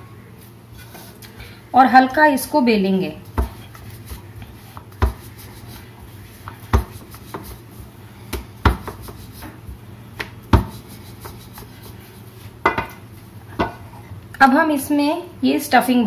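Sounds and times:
rolling pin rolling dough: 0.7s - 1.4s, 3.2s - 14.0s.

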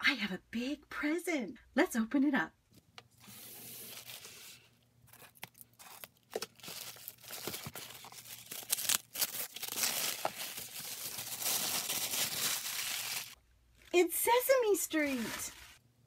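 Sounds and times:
wrapping paper tearing and crumpling: 3.3s - 13.4s, 14.4s - 15.8s.

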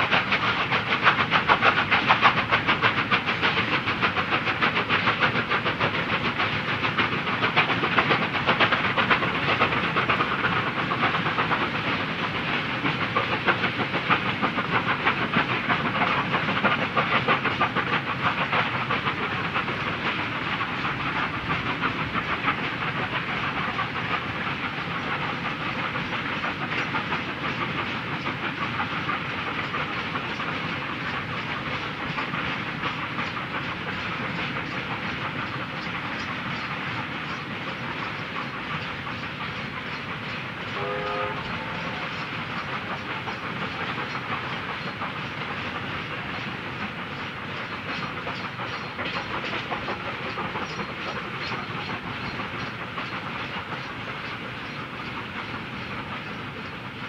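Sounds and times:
steam train rumbling and hissing: 0.0s - 57.0s
wheels clicking over rail joints: 0.0s - 57.0s
train whistle blast: 40.8s - 41.8s.

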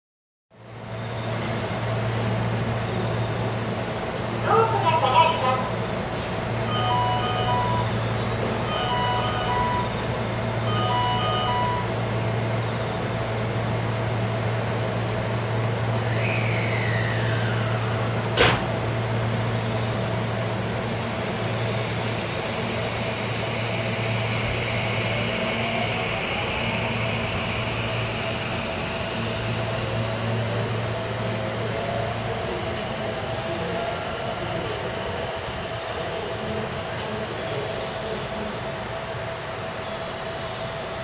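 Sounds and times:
train low hum: 0.5s - 41.0s
two-tone electronic chime: 6.7s - 8.0s, 8.7s - 10.0s, 10.7s - 11.9s
train motor whine: 15.6s - 38.2s.

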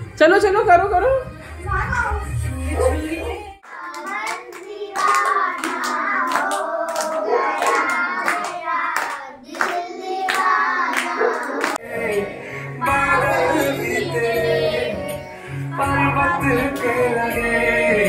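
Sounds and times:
hands clapping in time: 3.6s - 11.8s
children singing a chanting song: 3.6s - 17.8s.

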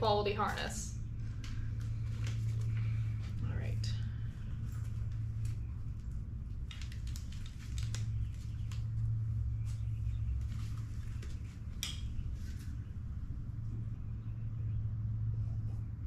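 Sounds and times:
steady low hum: 0.0s - 16.0s
packaging rustling: 6.5s - 9.0s.

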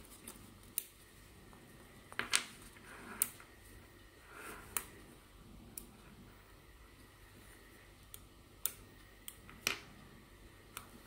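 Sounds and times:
magnetic balls snapping together: 8.0s - 10.0s.

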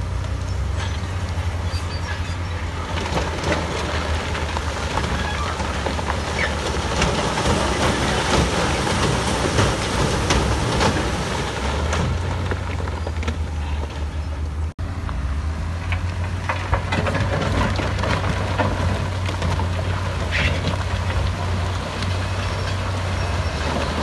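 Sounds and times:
gritty scraping: 0.0s - 14.8s, 15.7s - 24.0s
diesel machinery engine drone: 0.0s - 24.0s
metal clanks and knocks: 15.8s - 21.5s.

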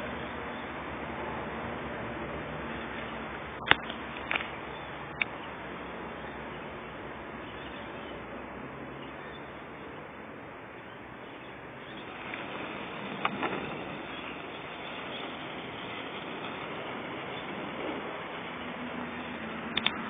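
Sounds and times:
steady low hiss: 0.0s - 20.0s
sparkler fizzing: 12.0s - 20.0s.

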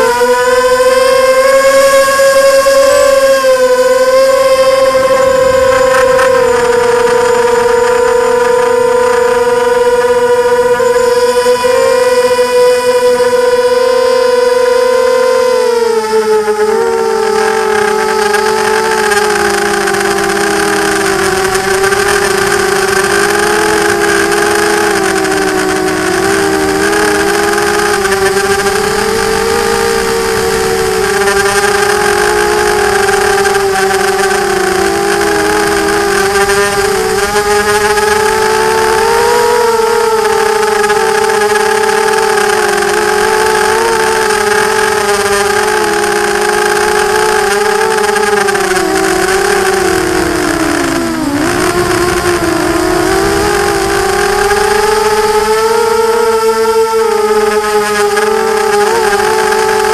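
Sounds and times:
drone motors whining: 0.0s - 59.9s
rushing air: 2.0s - 13.6s, 25.8s - 41.6s, 49.0s - 56.7s.

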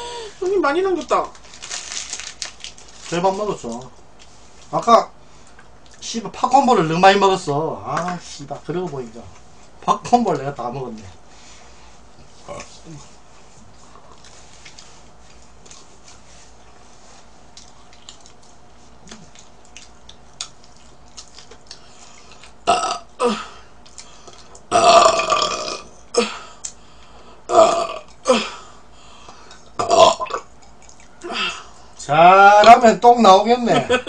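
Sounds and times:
woman burping loudly: 22.6s - 23.5s, 24.7s - 26.4s, 27.5s - 28.6s, 29.8s - 30.4s.

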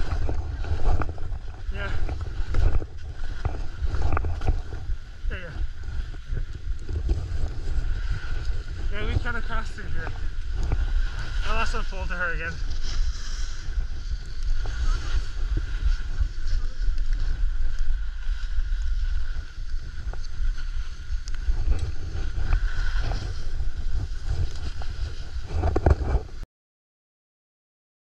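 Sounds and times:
wind buffeting microphone: 0.0s - 26.4s
skis hissing on snow: 7.6s - 25.5s.

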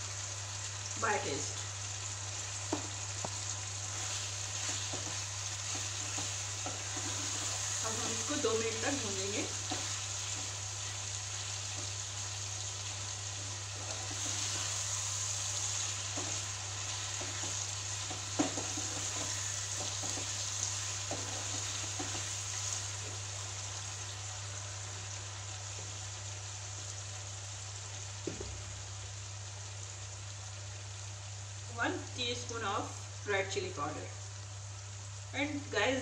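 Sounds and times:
chicken sizzling in oil: 0.0s - 36.0s
wooden spatula scraping pan: 3.9s - 10.6s, 13.4s - 14.9s, 15.8s - 22.8s.

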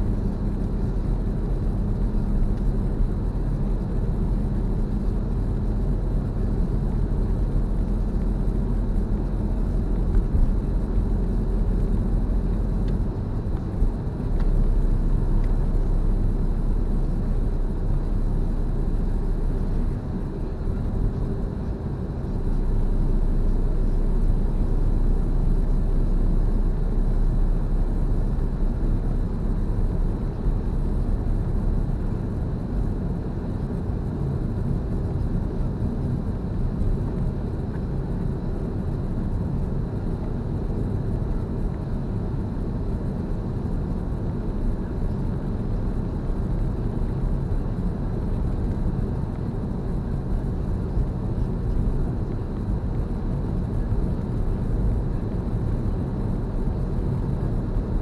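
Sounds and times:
car engine and tyre rumble: 0.0s - 58.0s.

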